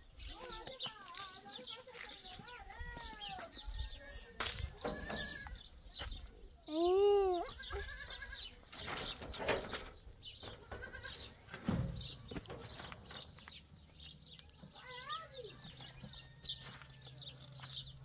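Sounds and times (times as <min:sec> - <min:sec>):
goats bleating: 0:07.4 - 0:08.6, 0:10.6 - 0:11.3.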